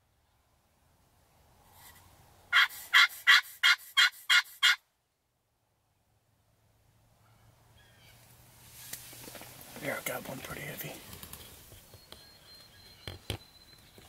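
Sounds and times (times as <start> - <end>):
turkey yelps: 2.5 - 4.8.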